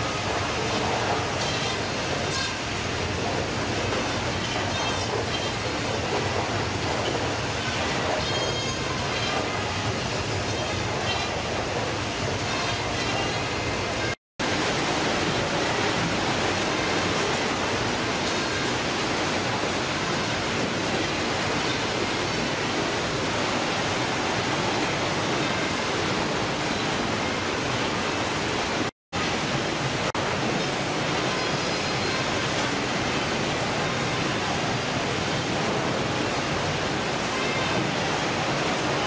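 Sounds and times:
fish-processing machinery din: 0.0s - 27.9s.

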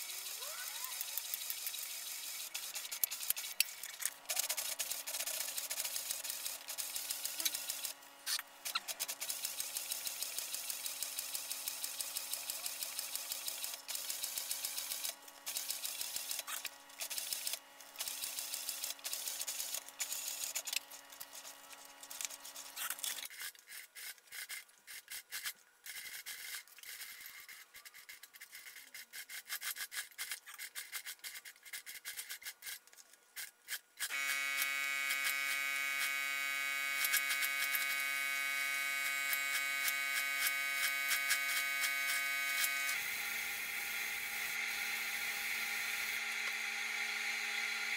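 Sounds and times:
sewing machine stitching: 0.0s - 21.5s.

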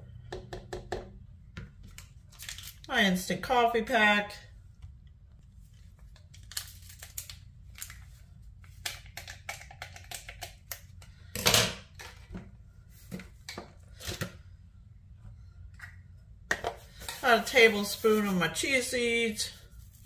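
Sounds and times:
coffee packet crinkling: 2.3s - 2.9s, 5.7s - 10.8s.

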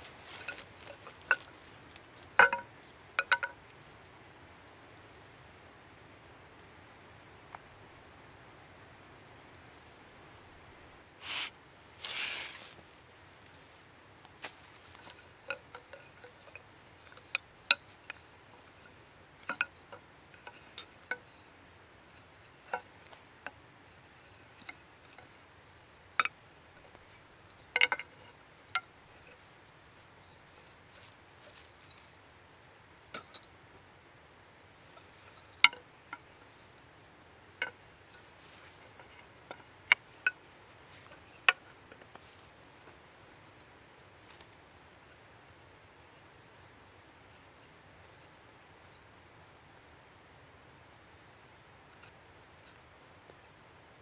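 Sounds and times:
wooden poles knocking together: 0.0s - 3.6s, 14.4s - 21.5s, 22.1s - 23.6s, 26.2s - 29.3s, 35.0s - 36.3s, 38.4s - 42.6s.

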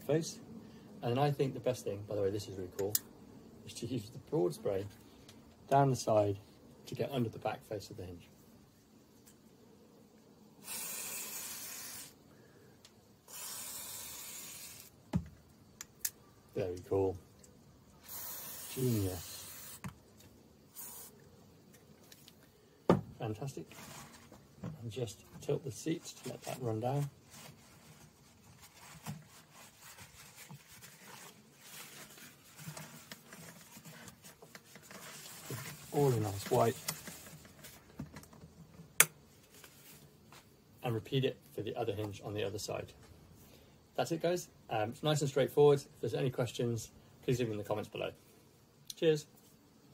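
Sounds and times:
aerosol spray hissing: 10.6s - 12.2s, 13.3s - 15.0s, 18.0s - 20.0s, 20.7s - 21.2s
paper towel rustling: 25.8s - 37.9s.

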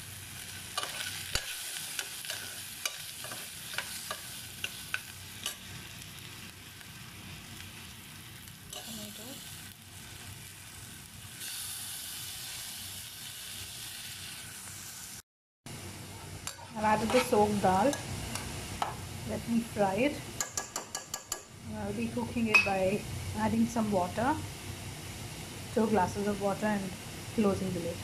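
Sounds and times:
vegetables sizzling in hot oil: 0.0s - 28.0s
spoon clicking against pot: 20.4s - 21.5s.

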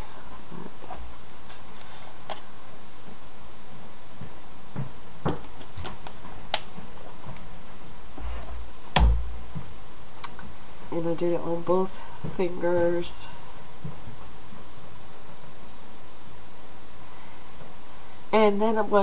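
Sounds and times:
heavier knock: 9.0s - 9.4s.

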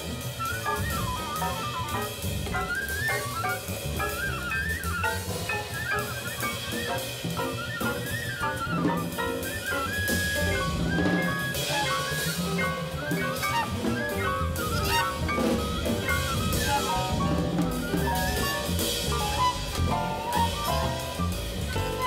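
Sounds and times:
double bass: 0.0s - 22.0s
drum kit: 0.0s - 22.0s
piano: 0.0s - 22.0s
saxophone: 0.0s - 22.0s
trumpet: 6.5s - 22.0s.

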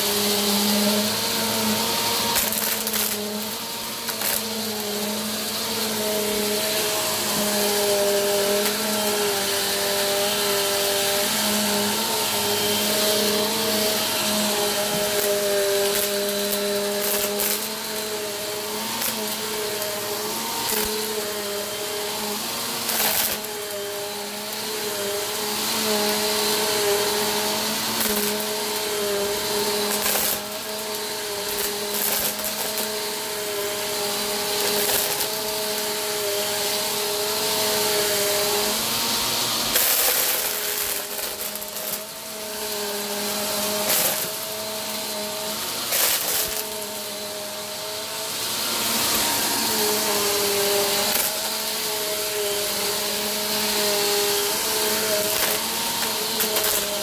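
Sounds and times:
vacuum cleaner running: 0.0s - 57.0s
plastic beads rattling: 39.6s - 42.1s, 43.6s - 44.5s, 45.8s - 46.8s, 54.2s - 57.0s.

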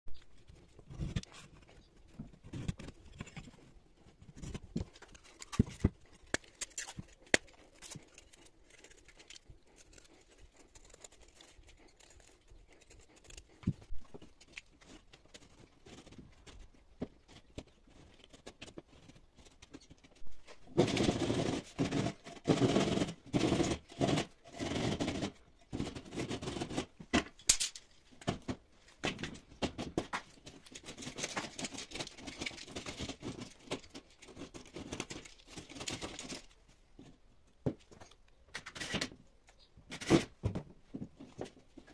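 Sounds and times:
tools tapping and clicking: 21.8s - 36.4s.

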